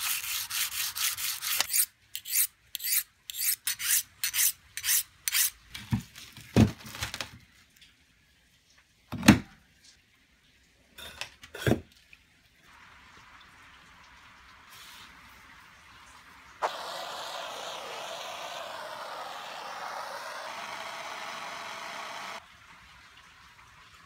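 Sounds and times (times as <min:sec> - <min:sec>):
hand-sanding strokes on steel: 0:00.0 - 0:05.5.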